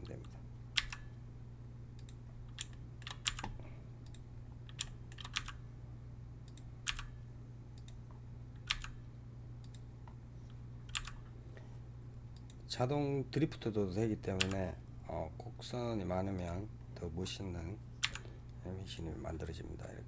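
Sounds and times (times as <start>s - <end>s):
keyboard keys and mouse clicking: 0.0s - 1.1s, 2.0s - 5.6s, 6.5s - 7.2s, 8.6s - 9.0s, 10.9s - 11.2s, 14.4s - 14.6s, 18.0s - 18.2s
steady low hum: 0.0s - 20.0s.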